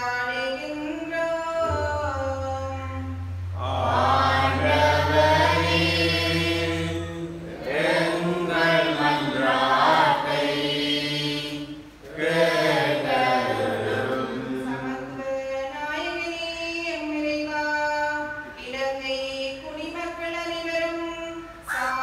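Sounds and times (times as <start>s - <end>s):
choir and congregation singing: 3.6s - 15.2s.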